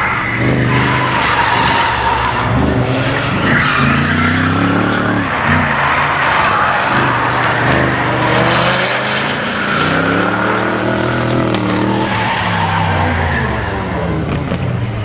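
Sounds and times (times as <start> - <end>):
tyres squealing: 0.0 - 14.1
race car engines revving: 0.0 - 15.0.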